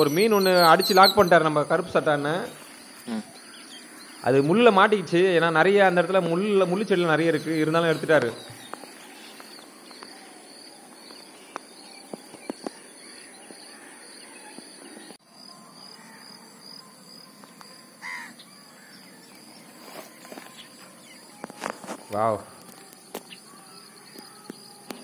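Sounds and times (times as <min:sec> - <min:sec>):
high chirp: 0:00.0 - 0:01.6
insects droning: 0:00.0 - 0:25.0
crow cawing: 0:12.6 - 0:15.0, 0:15.8 - 0:16.5, 0:18.0 - 0:19.2, 0:23.4 - 0:24.5.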